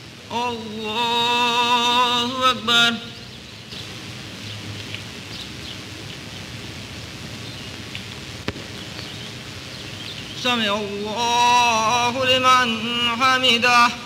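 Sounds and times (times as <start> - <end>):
film soundtrack hiss and crackle: 0.0 - 14.0
person chanting prayer: 0.3 - 3.3, 10.4 - 14.0.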